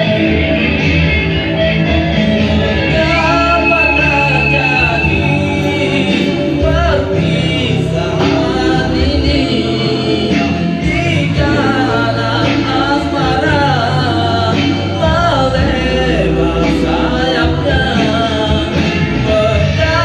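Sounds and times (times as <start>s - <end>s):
backing music: 0.0s - 20.0s
person singing slow melody: 2.9s - 20.0s.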